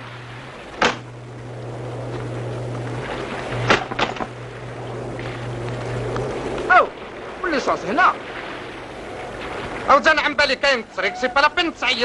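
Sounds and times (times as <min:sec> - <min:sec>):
motorboat engine idling: 0:00.0 - 0:12.0
sharp knocks: 0:00.8 - 0:01.1, 0:03.6 - 0:04.3.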